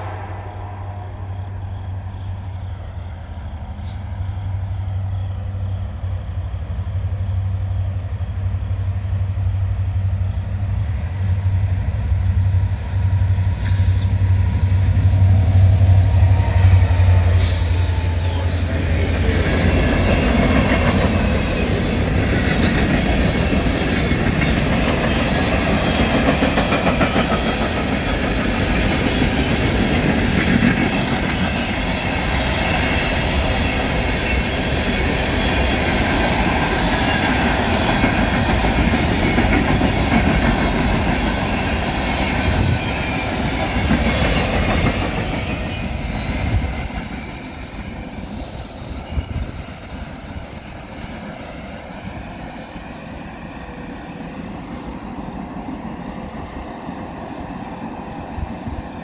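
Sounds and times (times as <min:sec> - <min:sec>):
diesel locomotive engine rumble: 0:00.0 - 0:59.0
train wheels clattering on rails: 0:13.4 - 0:50.7.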